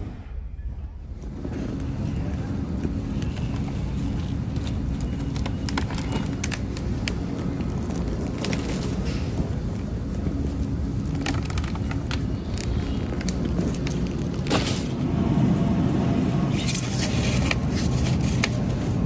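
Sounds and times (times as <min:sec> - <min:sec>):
car engine rumbling: 0:00.1 - 0:19.0.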